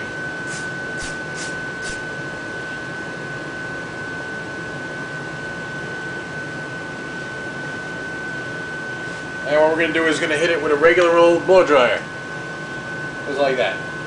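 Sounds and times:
steady hiss with high whine: 0:00.0 - 0:02.1.

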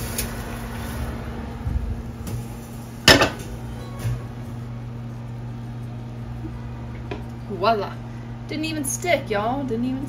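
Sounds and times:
steady low hum: 0:00.0 - 0:10.0
kitchen knocks and clatters: 0:03.1 - 0:04.2.

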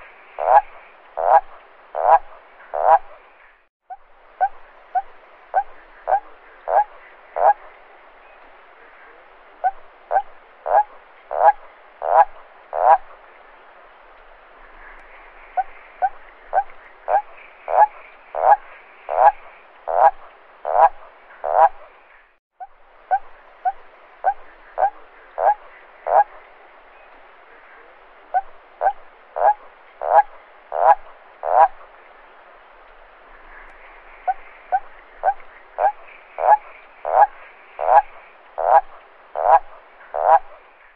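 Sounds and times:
toad croaking: 0:00.4 - 0:03.2, 0:03.9 - 0:07.7, 0:09.6 - 0:13.2, 0:14.9 - 0:21.9, 0:22.6 - 0:31.9, 0:33.6 - 0:40.7.

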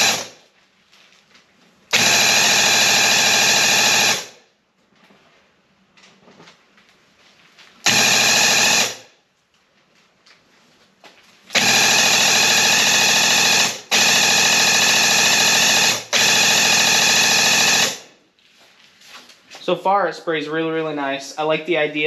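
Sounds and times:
paint sprayer pump running: 0:00.0 - 0:00.4, 0:01.9 - 0:04.4, 0:07.8 - 0:09.0, 0:11.5 - 0:18.1.

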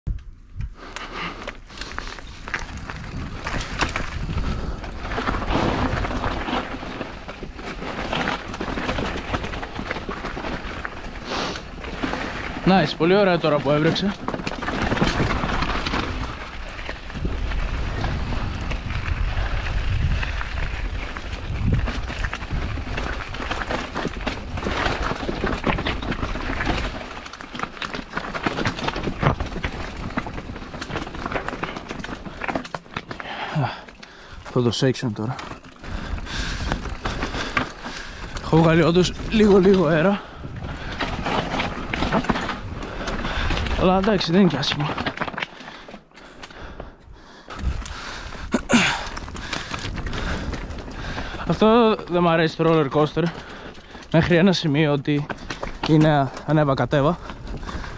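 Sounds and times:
bike clicks and rattles: 0:00.1 - 0:57.9
bike tyres crunching over gravel: 0:00.3 - 0:57.9
wind rumble on microphone: 0:02.2 - 0:06.9, 0:14.8 - 0:27.1, 0:35.8 - 0:44.2, 0:47.5 - 0:52.0, 0:56.8 - 0:57.9.

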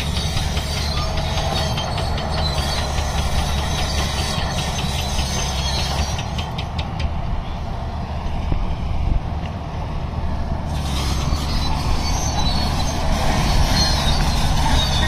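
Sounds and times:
steel tracks clanking and squealing: 0:00.0 - 0:07.2, 0:10.7 - 0:15.0
bulldozer engine drone: 0:00.0 - 0:15.0.

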